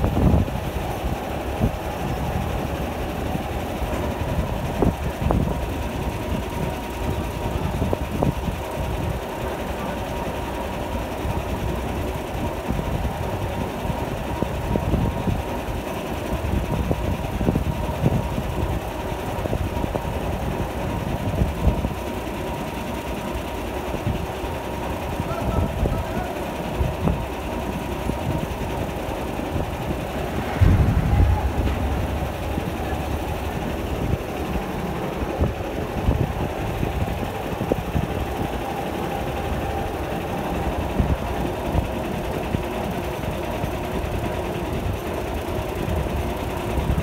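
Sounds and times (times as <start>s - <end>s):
crane diesel engine running: 0.0s - 47.0s
thin whine: 25.2s - 42.4s.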